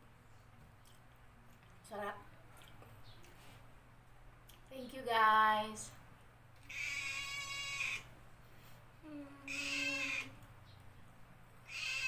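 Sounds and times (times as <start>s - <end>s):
animal calling: 6.6s - 8.1s, 9.5s - 10.4s, 11.6s - 12.0s.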